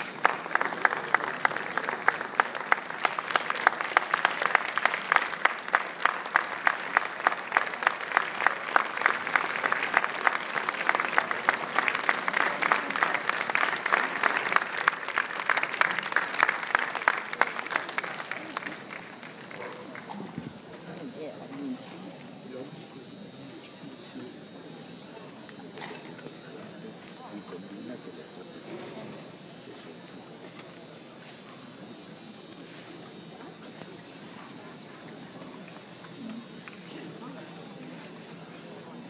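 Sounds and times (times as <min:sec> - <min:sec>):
close hand clapping: 0:00.0 - 0:20.8, 0:35.6 - 0:37.3
audience applauding: 0:00.0 - 0:21.2.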